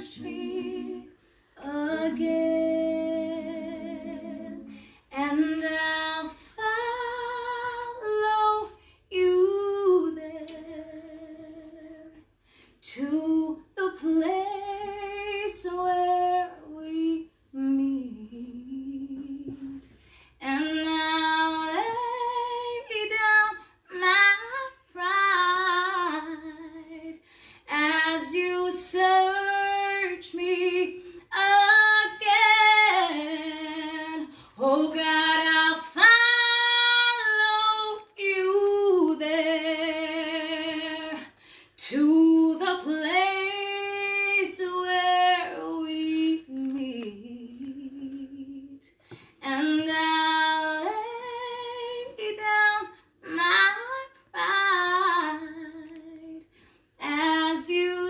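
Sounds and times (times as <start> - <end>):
woman singing unaccompanied: 0.0 - 12.2, 12.8 - 58.0
singer breathing: 4.6 - 5.1, 27.2 - 27.7, 41.3 - 41.8.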